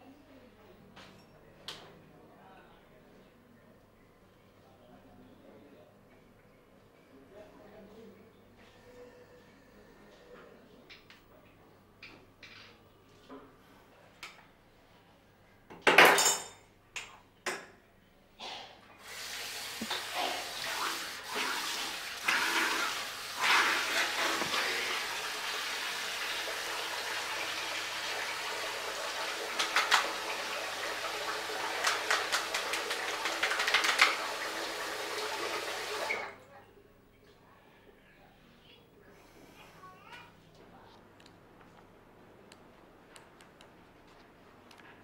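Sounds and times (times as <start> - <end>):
running water: 19.0 - 36.4.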